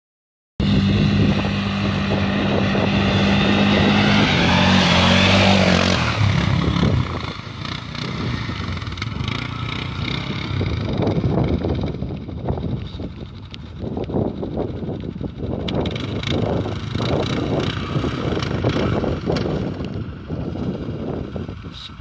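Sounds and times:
quad bike engine under throttle: 0.6 - 22.0.

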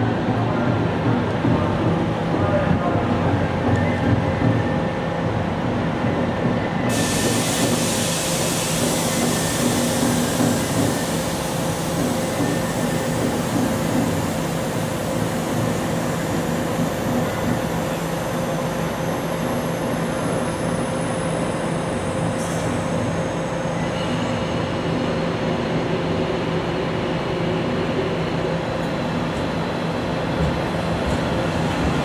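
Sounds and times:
train electric hum: 0.0 - 32.0.

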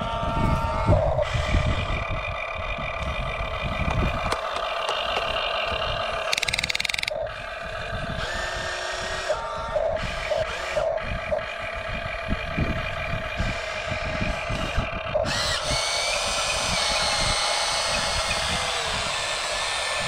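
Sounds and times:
electric motors whining: 0.0 - 20.0
rapid even rattling: 3.5 - 7.2.

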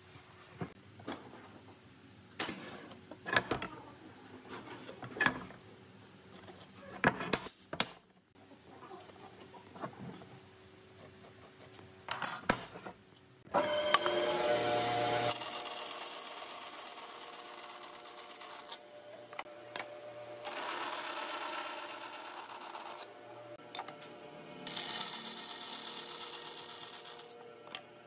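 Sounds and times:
band saw cutting wood: 13.6 - 18.8, 20.4 - 23.1, 24.6 - 27.4.

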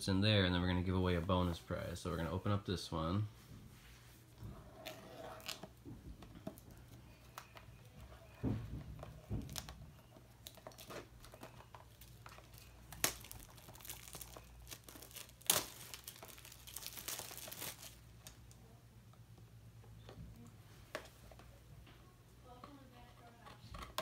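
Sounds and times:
plastic wrapping crinkling: 9.0 - 18.7.

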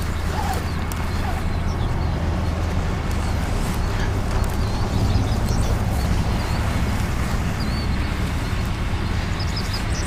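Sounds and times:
small birds chirping: 0.0 - 10.0
truck engine rumbling: 0.0 - 10.0.

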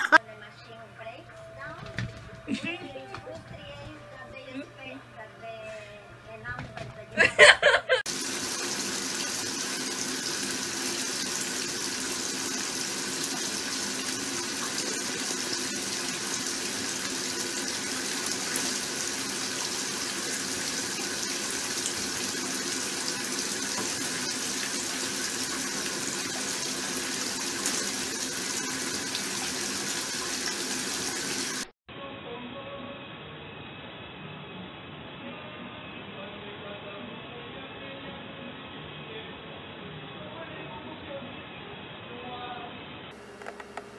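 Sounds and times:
running water: 6.6 - 31.7.

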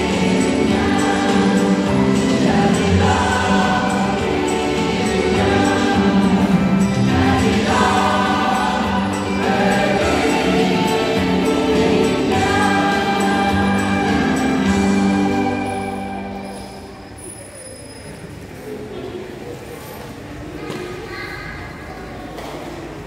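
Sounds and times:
church choir singing in harmony: 0.0 - 17.1.

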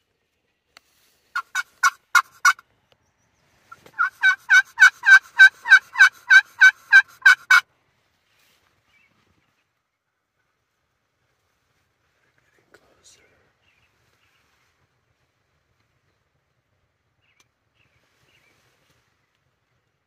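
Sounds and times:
turkey yelping: 1.4 - 2.6, 3.7 - 7.6.

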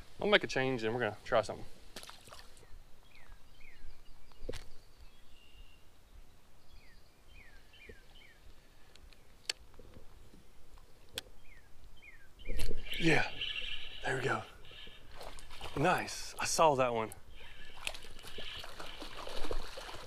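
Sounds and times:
faint outdoor background: 0.0 - 20.0
songbird falling chirps: 11.2 - 13.9.

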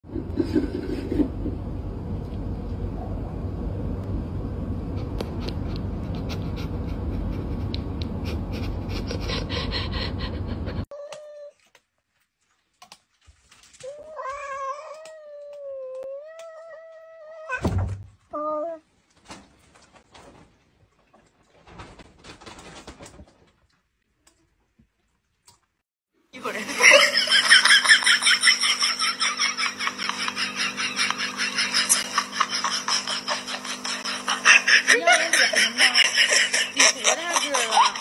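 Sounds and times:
cat meowing: 13.9 - 17.6.

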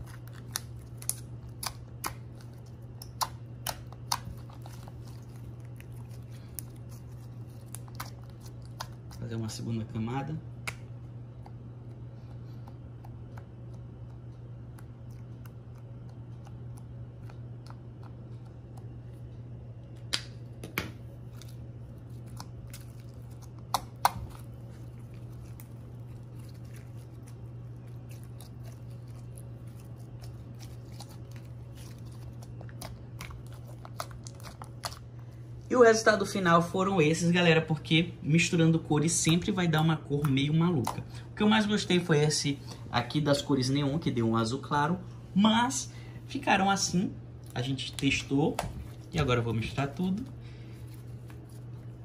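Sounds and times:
steady low hum: 0.0 - 52.0
slime kneaded with wet clicks: 0.1 - 4.8.

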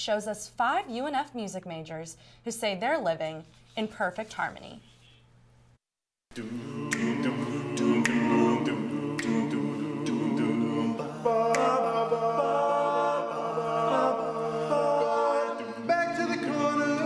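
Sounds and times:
male a cappella group singing: 6.3 - 17.0.

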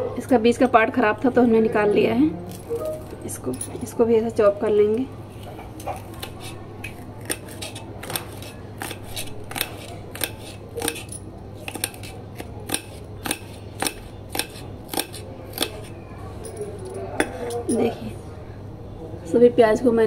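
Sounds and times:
knife chopping on plastic board: 5.8 - 15.9.

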